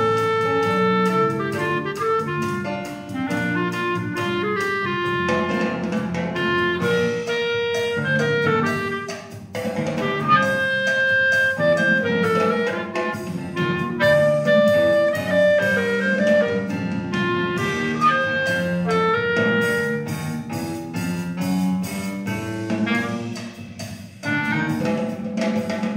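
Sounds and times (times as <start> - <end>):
bass and drums accompaniment: 0.0 - 25.9
clarinet melody: 0.0 - 25.9.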